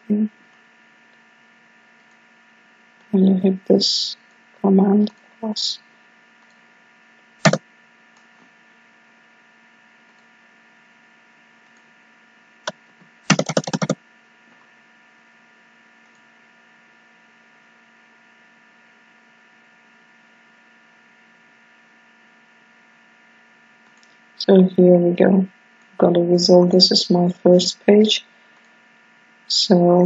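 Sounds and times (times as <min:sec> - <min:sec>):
electrical hum: 0:00.0 - 0:30.0
click: 0:10.1 - 0:10.3, 0:16.0 - 0:16.3
computer keyboard keystrokes: 0:13.3 - 0:14.0.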